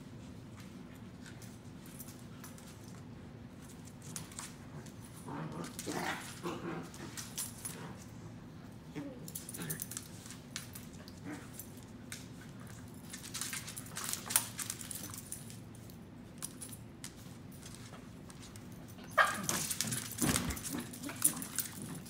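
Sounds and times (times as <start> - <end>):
collar tags jingling: 18.5 - 22.0.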